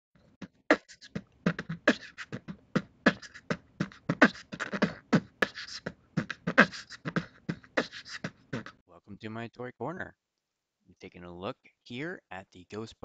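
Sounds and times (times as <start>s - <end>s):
beatbox percussion beat: 0.3s - 8.8s.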